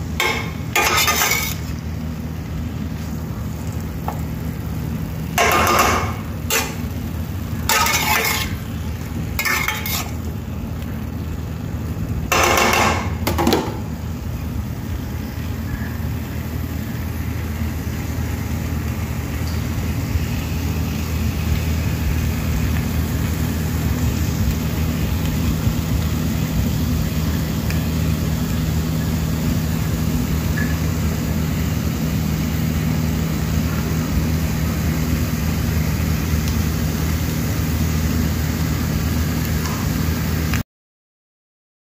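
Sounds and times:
steady low hum: 0.0 - 39.4
metal spatula scraping frying pan: 0.2 - 1.7, 5.4 - 6.8, 7.6 - 8.6, 9.4 - 10.2.

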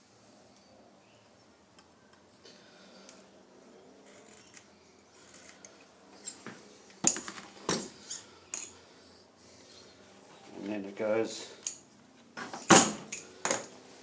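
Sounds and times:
metal tools clacking: 4.0 - 8.8.

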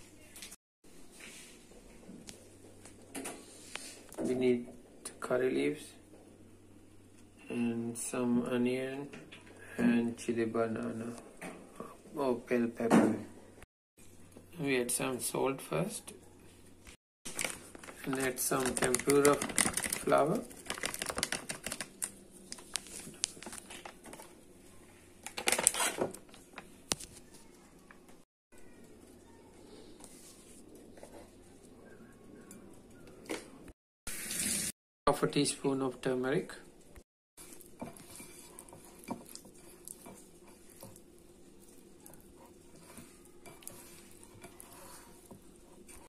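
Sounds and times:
plastic packet crinkling: 17.3 - 24.3, 25.2 - 26.7.

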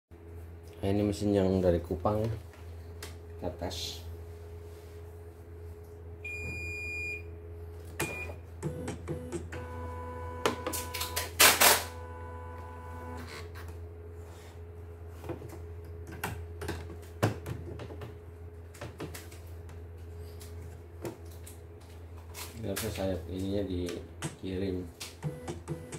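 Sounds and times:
machine low hum: 0.2 - 25.9
control panel beeps: 6.3 - 7.3
machine whining tone: 8.0 - 13.6.

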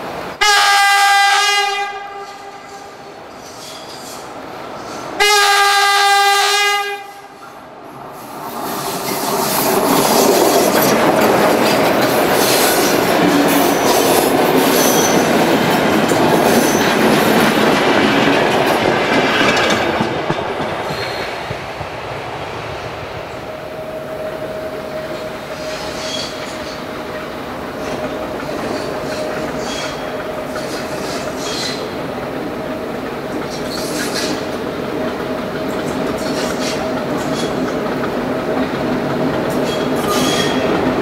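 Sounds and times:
diesel locomotive horn: 0.4 - 3.3, 5.2 - 7.6, 23.5 - 27.4
train wheels clattering over rail joints: 8.3 - 23.5, 25.2 - 41.0.

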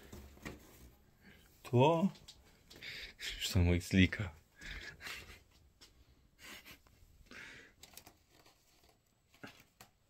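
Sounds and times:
breaths: 1.2 - 1.6, 2.4 - 3.4, 4.5 - 8.0.

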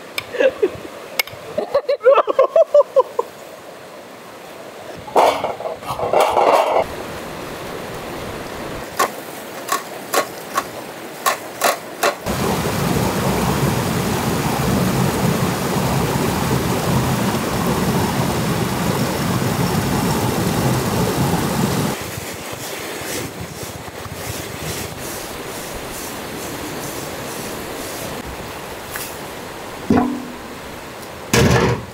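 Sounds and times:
river water rushing over rocks: 6.8 - 22.0.

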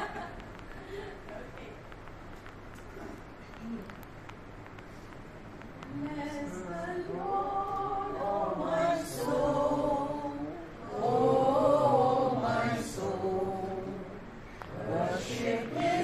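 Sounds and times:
mixed group singing: 6.2 - 16.0.

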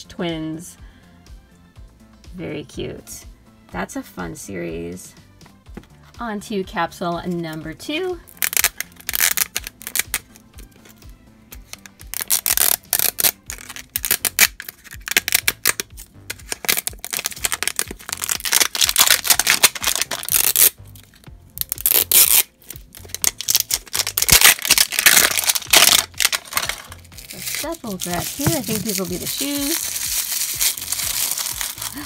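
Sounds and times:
plastic wrapping crinkling: 8.3 - 11.0, 11.6 - 32.0.

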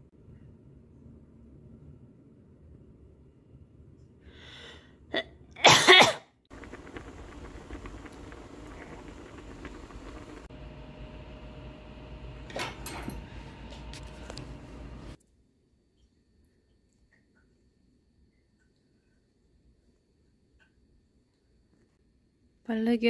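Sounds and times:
loud sneeze: 5.6 - 6.3
pot bubbling on a stovetop: 6.5 - 15.2.

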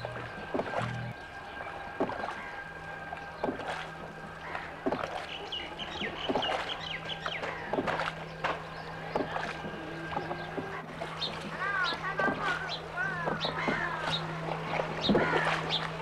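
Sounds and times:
paddle splashing in water: 0.0 - 16.0.

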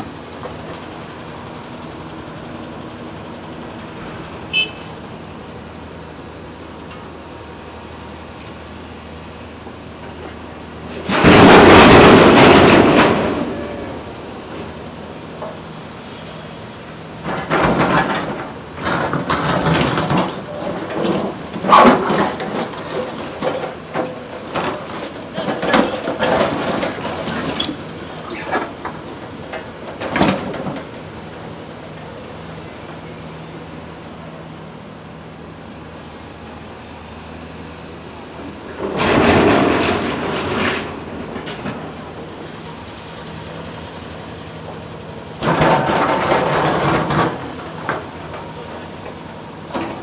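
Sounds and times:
excavator diesel engine running: 0.0 - 50.0
heavy material clanking and banging: 10.9 - 13.9, 38.7 - 42.0, 45.4 - 48.1.

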